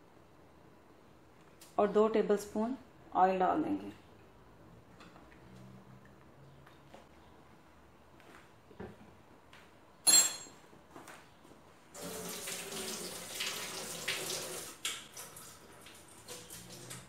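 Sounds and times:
spoon clinking on cookware: 0:10.1 - 0:10.6
running splashing water: 0:12.0 - 0:17.0.

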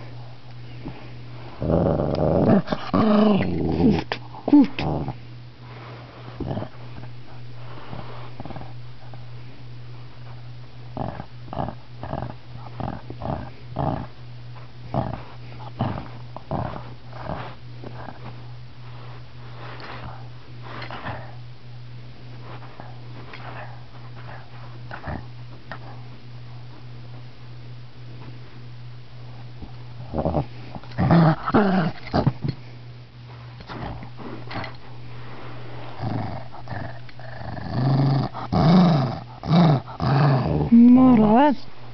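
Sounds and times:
small dog growling: 0:01.6 - 0:05.2, 0:06.4 - 0:06.8, 0:11.0 - 0:14.2, 0:14.9 - 0:18.2, 0:24.9 - 0:25.3, 0:30.1 - 0:32.4, 0:33.6 - 0:34.8, 0:35.9 - 0:41.5.

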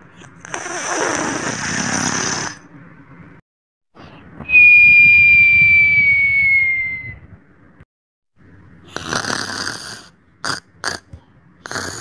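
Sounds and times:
cartoon snore: 0:00.2 - 0:02.6, 0:08.9 - 0:12.0
high whistle sliding down: 0:04.4 - 0:07.3.

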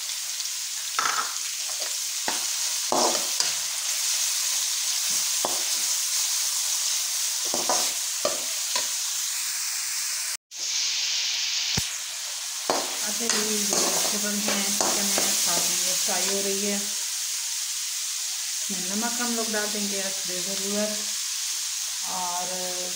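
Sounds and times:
food sizzling in hot oil: 0:00.0 - 0:22.9
metal spoon scraping a wok: 0:12.7 - 0:16.4.

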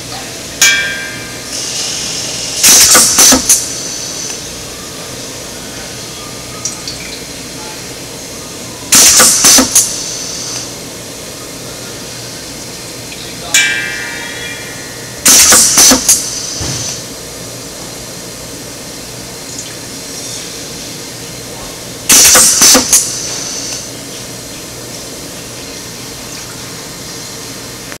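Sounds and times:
sharp pneumatic clicks: 0:01.5 - 0:04.4, 0:08.9 - 0:10.7, 0:15.2 - 0:17.1, 0:22.1 - 0:23.9
compressed air hissing: 0:01.5 - 0:04.6, 0:08.9 - 0:10.8, 0:15.2 - 0:17.1, 0:22.1 - 0:23.9
low hum: 0:13.6 - 0:17.7.

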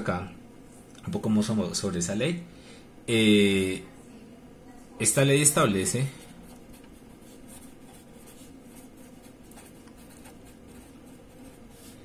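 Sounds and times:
marker scratching on paper: 0:06.2 - 0:12.0.

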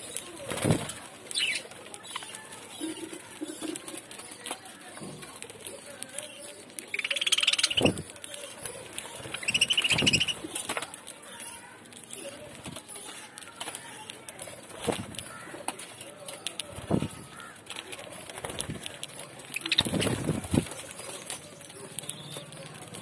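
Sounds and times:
budgerigars chattering: 0:06.4 - 0:08.1, 0:09.2 - 0:10.6.

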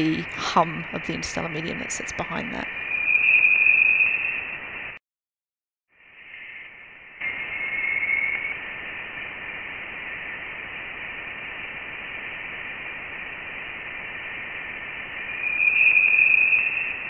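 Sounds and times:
static-like hiss with faint tone: 0:00.0 - 0:05.0, 0:05.9 - 0:17.0
spooky whistle: 0:15.4 - 0:17.0.

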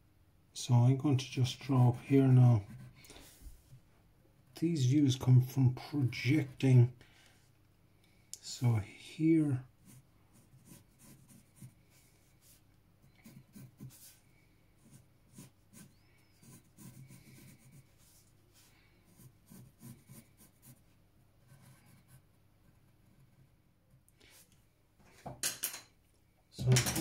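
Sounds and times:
pencil scratching on paper: 0:02.2 - 0:03.4, 0:09.8 - 0:23.5.

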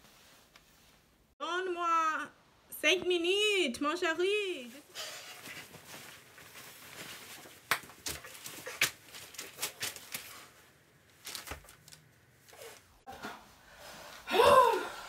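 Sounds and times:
paper or clothing rustling: 0:00.0 - 0:01.3, 0:04.6 - 0:13.1.

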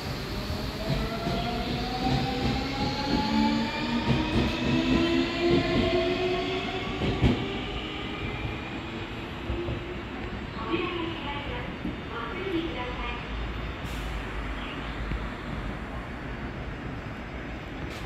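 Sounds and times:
train running noise: 0:00.0 - 0:08.7.

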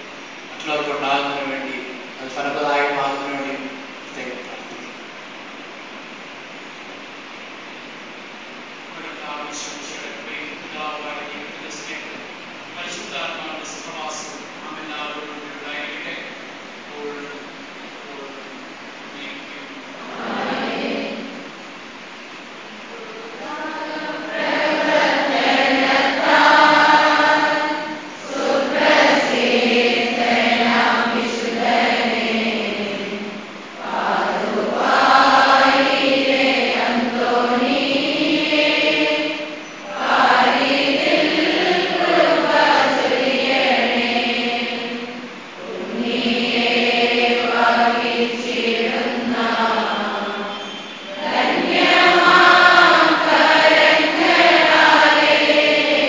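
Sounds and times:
voices singing a hymn: 0:00.0 - 0:04.6, 0:19.2 - 0:22.0, 0:22.7 - 0:56.0.

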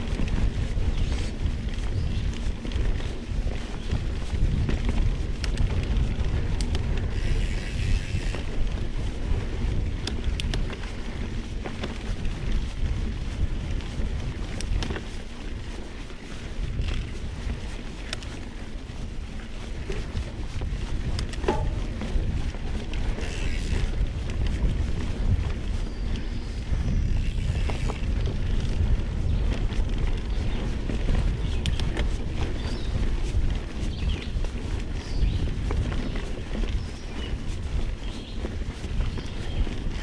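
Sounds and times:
bike rattles and creaks: 0:00.0 - 0:40.0
tyre noise on dirt: 0:00.0 - 0:40.0
wind buffeting on microphone: 0:00.0 - 0:40.0
tyres rumbling on dirt: 0:19.7 - 0:24.8
sharp clicks and knocks: 0:21.1 - 0:22.2.

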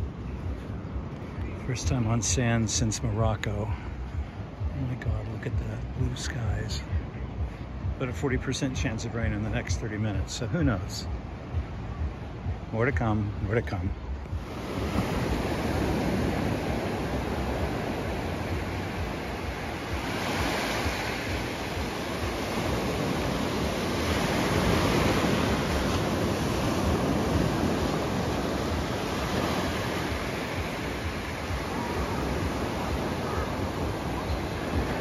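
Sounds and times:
surf breaking on sand: 0:14.3 - 0:35.0.

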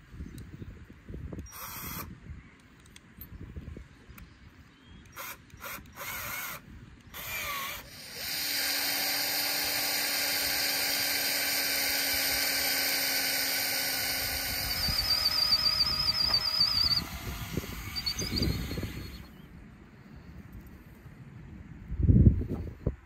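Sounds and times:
drill chuck clicking and whirring: 0:01.3 - 0:03.0, 0:05.0 - 0:19.3
drill boring into wood: 0:01.5 - 0:02.1, 0:05.1 - 0:19.3.

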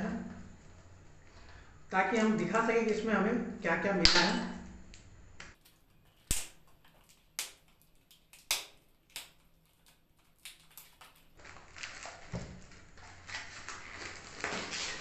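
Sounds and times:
seal film crinkling: 0:05.0 - 0:15.0
plastic packaging cracking: 0:05.6 - 0:15.0.

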